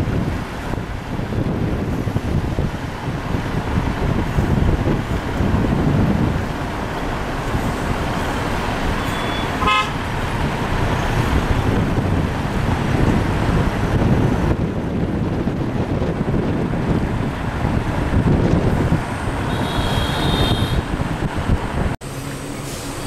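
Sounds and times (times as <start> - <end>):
engine and tyres rumbling: 0.0 - 23.0
short horn toot: 9.0 - 10.0, 19.5 - 20.8.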